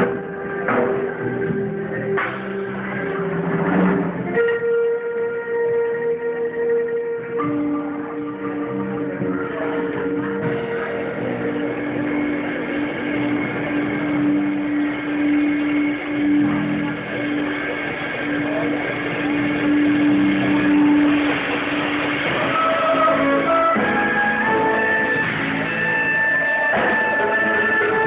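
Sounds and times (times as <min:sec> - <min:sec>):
drum kit: 0:00.0 - 0:28.0
electric guitar: 0:00.0 - 0:28.0
keyboard: 0:00.0 - 0:28.0
congas: 0:09.3 - 0:28.0.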